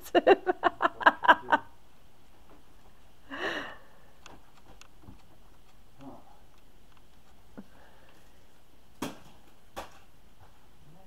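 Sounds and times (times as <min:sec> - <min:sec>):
person laughing: 0:00.0 - 0:01.7.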